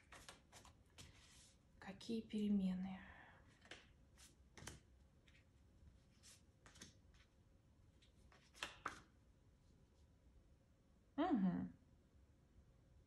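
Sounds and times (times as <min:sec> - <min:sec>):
soft card snaps: 0:08.3 - 0:09.1.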